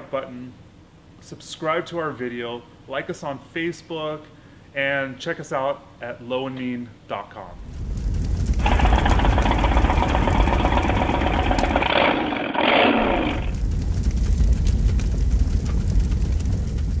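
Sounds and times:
engine rumbling: 0:07.6 - 0:17.0.

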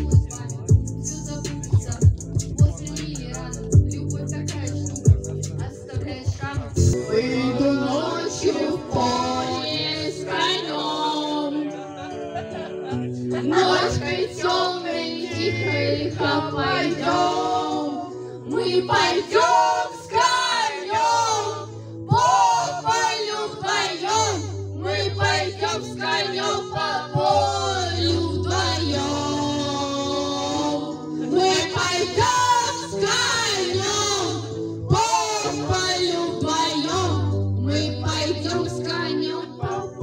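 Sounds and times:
loud backing track: 0:00.0 - 0:11.1
women singing into microphones: 0:00.1 - 0:04.9, 0:05.6 - 0:11.7, 0:13.4 - 0:40.0.

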